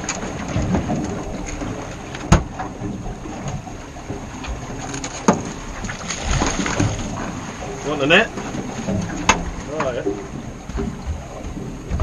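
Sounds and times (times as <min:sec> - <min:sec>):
water noise around boat: 0:00.0 - 0:12.0
wind: 0:00.0 - 0:12.0.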